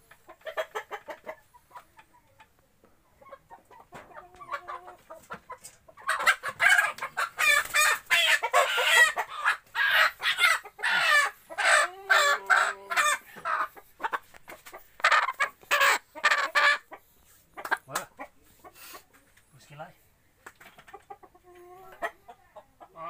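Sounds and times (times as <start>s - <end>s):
chicken squawking loudly: 6.0s - 14.2s, 15.0s - 17.0s.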